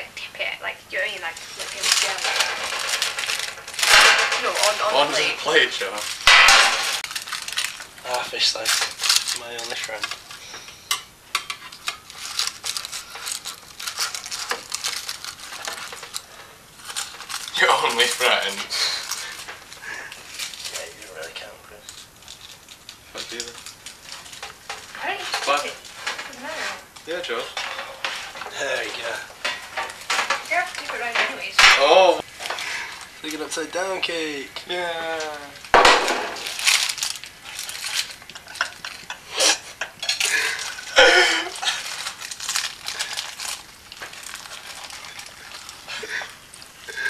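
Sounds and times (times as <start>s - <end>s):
cutlery and metal clattering: 1.3s - 33.6s, 35.2s - 47.0s
metal spatula scraping baking tin: 24.4s - 32.0s.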